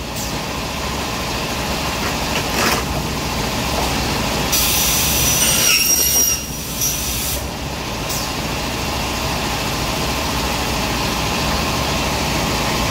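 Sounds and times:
saw blade screeching through metal: 5.1s - 7.0s.

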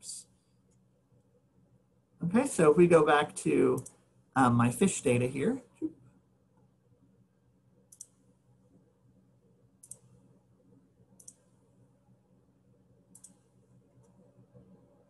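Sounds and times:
low room hum: 0.0s - 15.0s
computer mouse clicks: 3.8s - 4.0s, 7.9s - 8.2s, 9.8s - 10.2s, 11.2s - 11.5s, 13.1s - 14.3s.

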